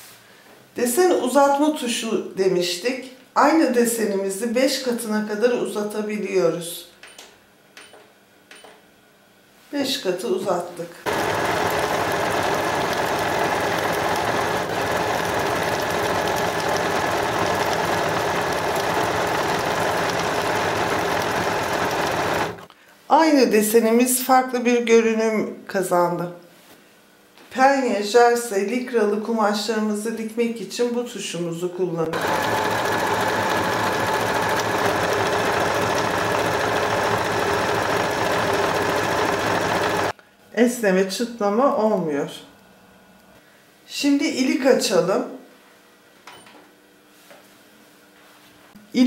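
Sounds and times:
sewing machine stitching: 11.1s - 22.7s, 32.1s - 40.1s.

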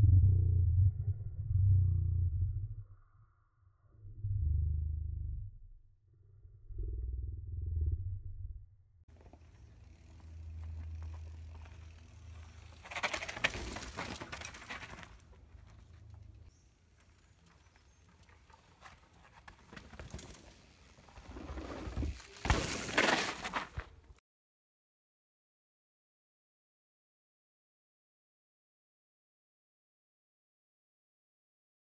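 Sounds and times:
mountain bike tyre noise: 9.1s - 24.2s
small clatters: 9.2s - 20.6s.

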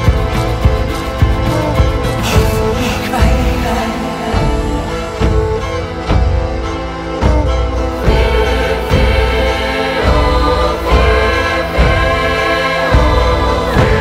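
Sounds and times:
choir-like sustained voices: 0.0s - 14.0s.

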